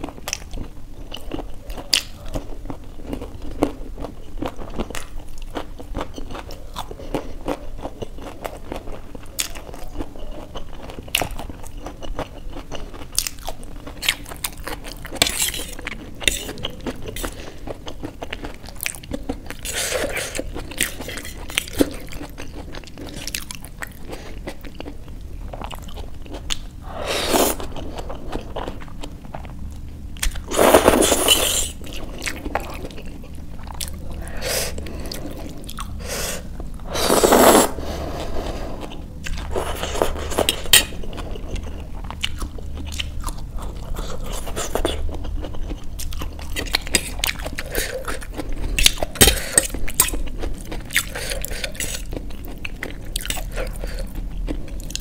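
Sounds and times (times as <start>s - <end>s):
noodle slurping: 26.8s - 28.2s, 30.5s - 31.9s, 34.2s - 41.4s
wet chewing: 38.2s - 55.0s.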